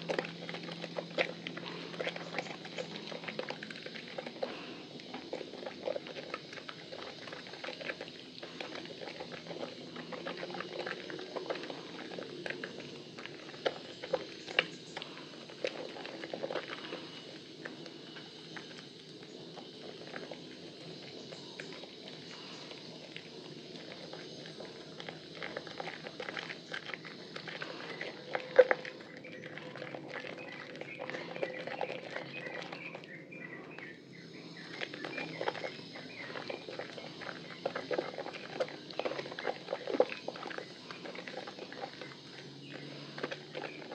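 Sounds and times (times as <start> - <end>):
wet soap squelches: 0.0 - 43.9.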